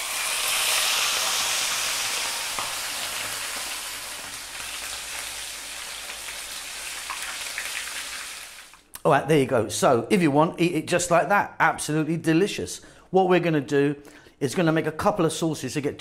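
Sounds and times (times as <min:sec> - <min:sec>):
fish sizzling in oil: 0:00.0 - 0:08.8.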